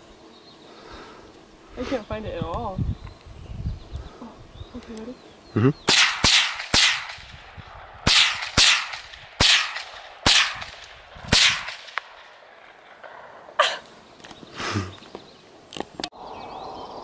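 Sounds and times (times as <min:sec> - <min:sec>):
rifle shots: 0:05.9 - 0:13.1.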